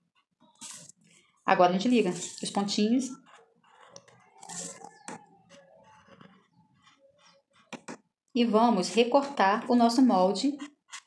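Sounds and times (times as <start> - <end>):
marker scratching on paper: 0.1 - 1.1, 1.8 - 11.0
paper rustling: 0.6 - 1.1, 1.9 - 8.0.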